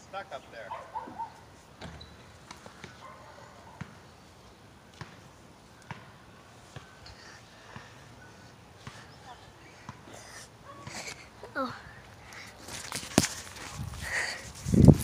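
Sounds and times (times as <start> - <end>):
knocks and scuffs on tree bark: 12.6 - 15.0.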